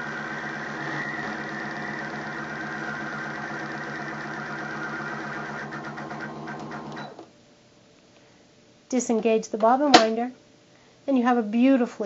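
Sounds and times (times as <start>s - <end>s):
sewing machine running: 0.0s - 7.2s.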